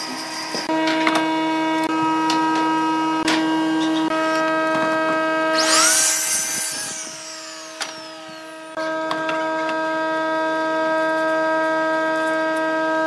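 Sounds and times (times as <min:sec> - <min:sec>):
saw blade cutting wood: 0:05.5 - 0:08.9
saw motor whining: 0:05.5 - 0:09.0.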